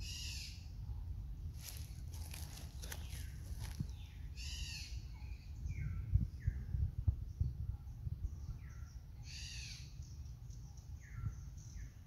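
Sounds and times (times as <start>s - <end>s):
whistled bird calls: 4.0s - 6.6s, 8.4s - 12.0s.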